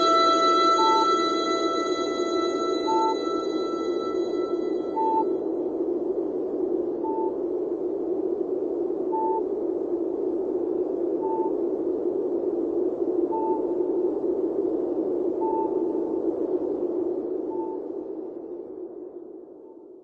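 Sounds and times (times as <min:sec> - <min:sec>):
short high beep: 0:00.0 - 0:05.2
windy whoosh: 0:00.0 - 0:15.4.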